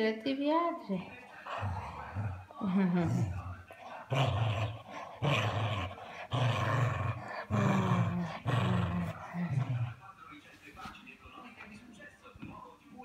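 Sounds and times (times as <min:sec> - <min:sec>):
dog play-growling: 0:01.2 - 0:10.2.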